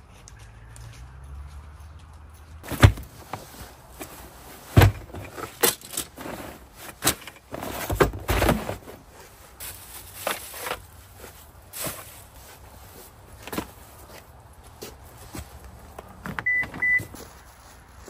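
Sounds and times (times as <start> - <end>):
camping gear knocking: 2.6 - 9.0.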